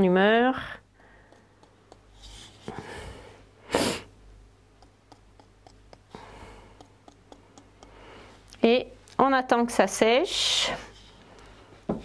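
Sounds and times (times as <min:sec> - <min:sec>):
person breathing quietly: 0:00.6 - 0:04.1, 0:05.9 - 0:08.5
sharp sniff: 0:02.2 - 0:04.1.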